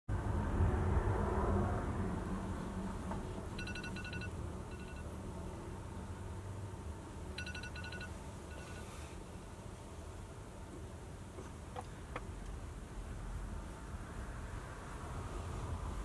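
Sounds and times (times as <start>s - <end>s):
electronic alarm beeping: 3.6s - 5.0s, 7.4s - 8.9s.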